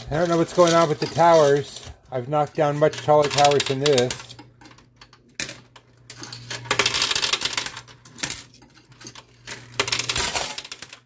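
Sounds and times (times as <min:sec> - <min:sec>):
coins clattering onto coins: 0:00.0 - 0:02.0, 0:02.6 - 0:11.0.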